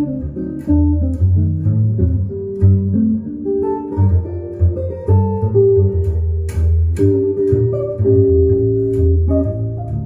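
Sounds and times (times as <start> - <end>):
electric guitar playing jazz: 0.0 - 10.0
plucked double bass: 0.0 - 10.0.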